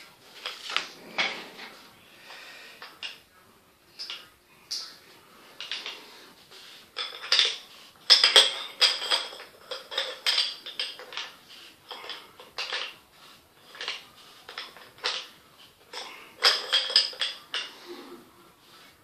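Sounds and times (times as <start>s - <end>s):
small hard parts clinking: 7.0s - 13.0s, 13.6s - 17.8s.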